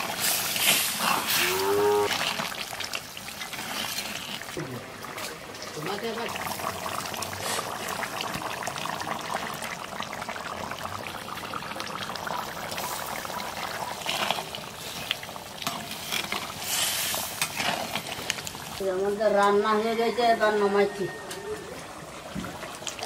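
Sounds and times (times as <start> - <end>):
curry bubbling and sizzling: 0.0 - 23.0
spatula stirring: 14.1 - 18.6.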